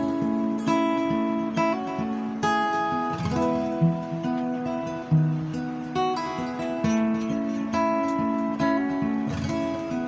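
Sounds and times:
fingerstyle acoustic guitar: 0.0 - 10.0.

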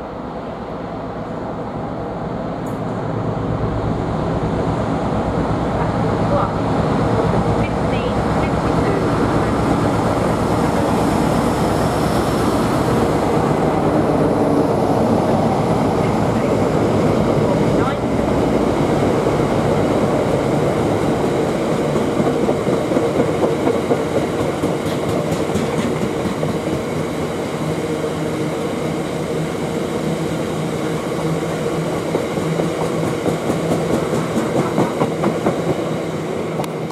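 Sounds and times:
freight wagons rumbling on rails: 4.6 - 14.4, 15.0 - 27.2
wheels clacking over rail joints: 21.8 - 26.8.

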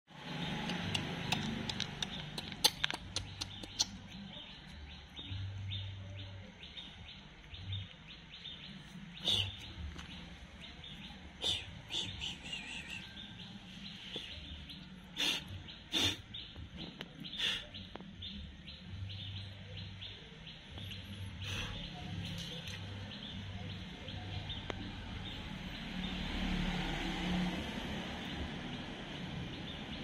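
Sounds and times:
small birds chirping: 0.1 - 30.0.

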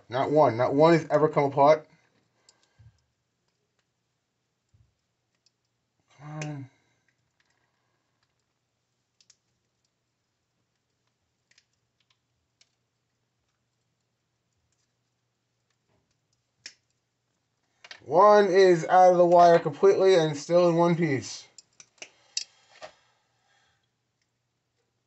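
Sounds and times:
man making vocal sound: 18.1 - 21.2
wire clicks: 21.5 - 23.0.

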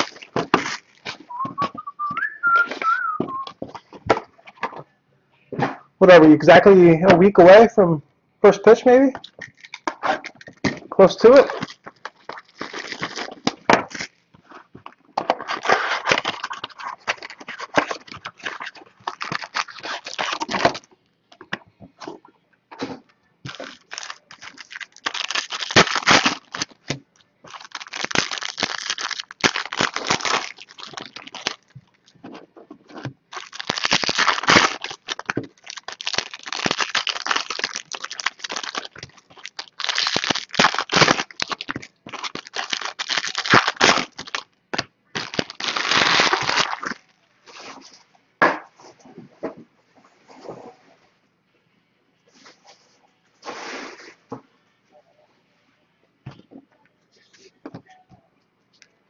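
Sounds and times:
foil wrappers tearing and crinkling: 0.0 - 1.3, 9.4 - 14.2, 15.3 - 20.8, 23.5 - 32.0, 33.3 - 44.5, 45.1 - 47.1.

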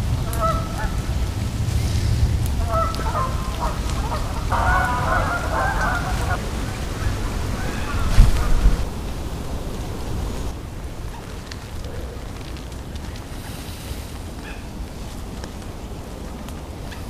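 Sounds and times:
geese honking: 0.0 - 1.1, 2.6 - 8.9
wind rumble on microphone: 0.0 - 17.0.

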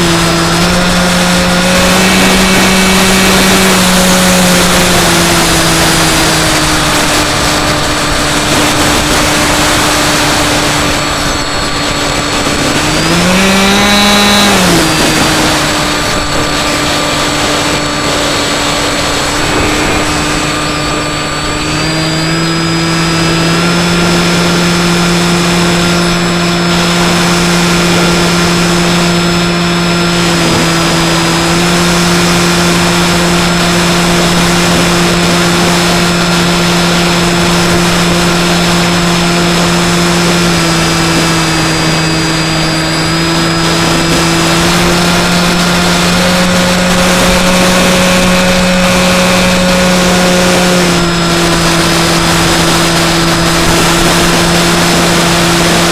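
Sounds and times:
rush of air: 0.0 - 31.4
electric motor and propeller: 0.0 - 55.9.

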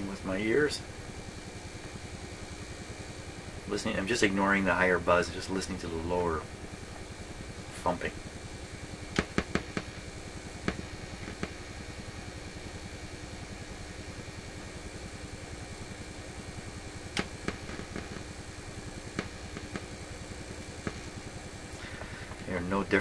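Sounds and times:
radio speaker buzz: 0.0 - 23.0
sharp electrical clicks: 0.0 - 23.0
radio speaker low thumping: 9.0 - 11.8, 17.1 - 18.4, 19.1 - 20.0, 20.7 - 22.5.

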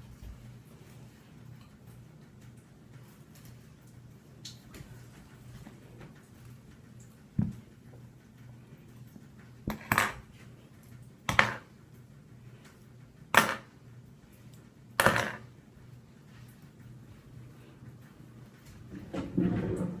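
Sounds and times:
hard objects clacking on countertop: 9.7 - 10.2, 11.3 - 11.6, 13.3 - 13.7, 15.0 - 15.4.

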